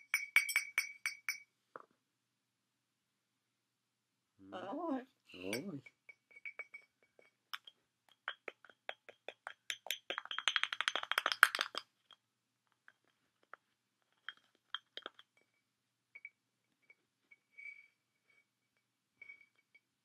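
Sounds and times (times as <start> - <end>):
cockatoo beak tapping glass bottle: 0.0 - 1.5, 5.4 - 12.2, 13.4 - 15.5.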